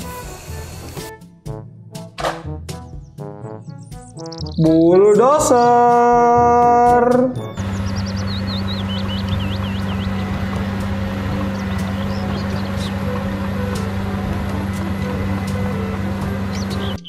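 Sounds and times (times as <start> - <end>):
bulldozer diesel engine droning: 0.0 - 1.2, 7.0 - 17.0
birds chirping: 2.8 - 6.2, 7.4 - 17.0.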